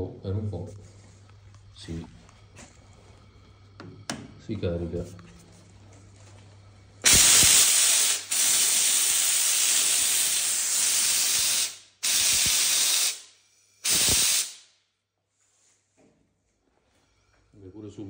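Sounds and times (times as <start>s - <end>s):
steam cleaner hissing blasts: 7.0s - 14.7s.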